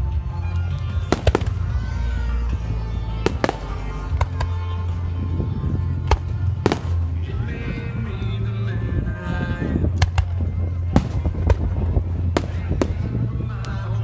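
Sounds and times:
music playing: 0.0s - 14.0s
fireworks exploding: 1.1s - 1.8s, 3.2s - 4.6s, 11.0s - 13.2s.

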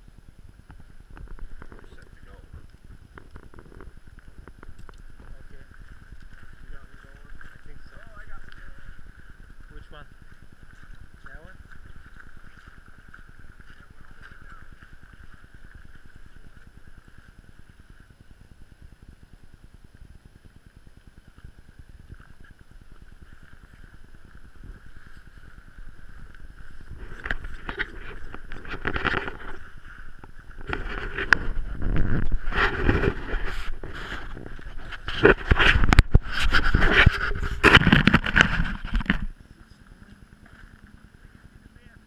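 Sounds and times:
faint outdoor hiss: 0.0s - 42.0s.

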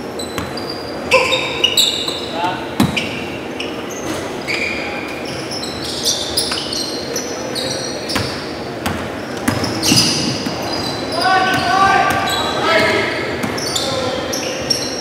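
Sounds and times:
sneakers squeaking on hardwood: 0.0s - 15.0s
basketball bouncing: 0.3s - 0.6s, 8.2s - 10.6s.

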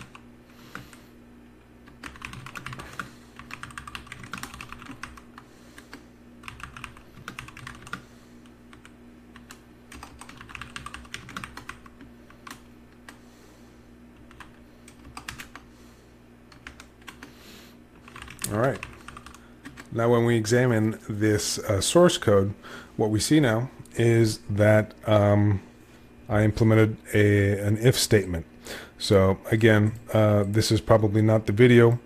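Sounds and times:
typing on keyboard: 1.9s - 5.2s, 5.8s - 8.0s, 8.7s - 13.2s, 14.2s - 15.6s, 16.5s - 17.3s, 18.0s - 19.9s.

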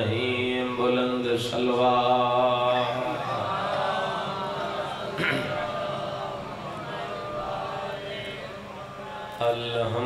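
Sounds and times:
man chanting: 0.0s - 3.5s, 7.9s - 10.0s.

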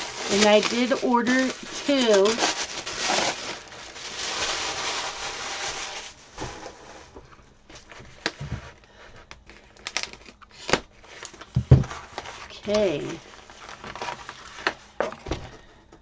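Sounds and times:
tissue paper rustling: 0.0s - 7.1s, 9.9s - 15.0s.

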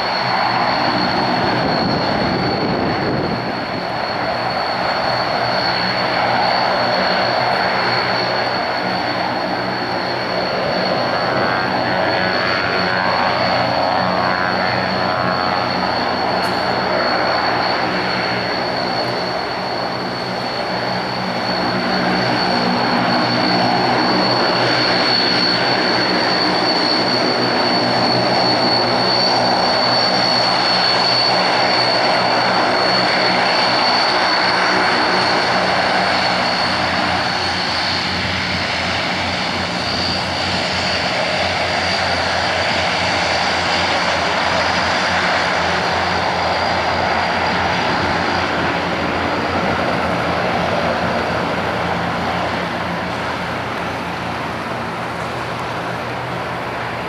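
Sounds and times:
turboprop engines whining: 0.0s - 57.0s.

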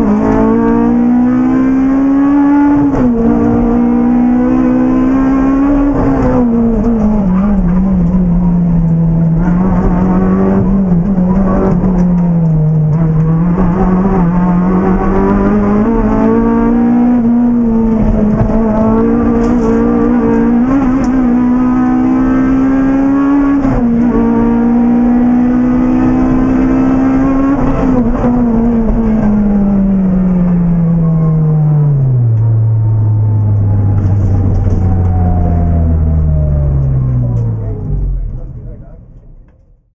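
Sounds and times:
car engine revving: 0.0s - 39.4s.

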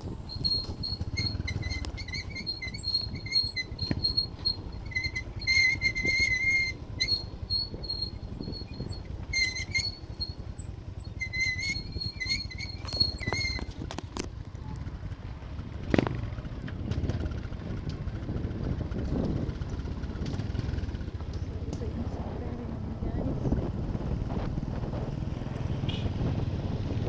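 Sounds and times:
high-pitched vehicle squeak: 0.0s - 14.0s, 25.8s - 27.0s
vehicle rumbling on dirt road: 0.0s - 27.0s.

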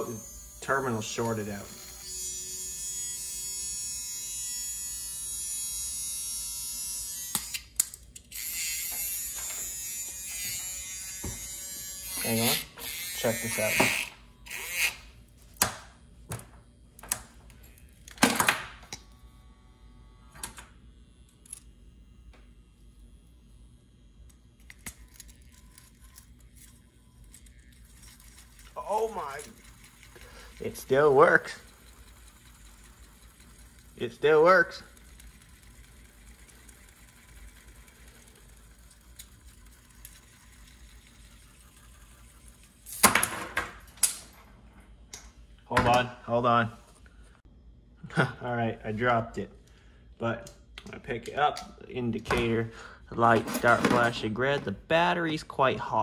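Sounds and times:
electric toothbrush motor buzzing: 0.0s - 15.2s, 19.0s - 43.0s.

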